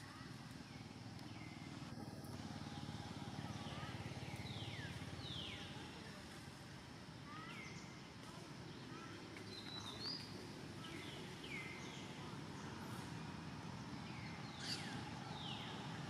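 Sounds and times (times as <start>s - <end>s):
bird whistling calls: 14.4s - 15.8s.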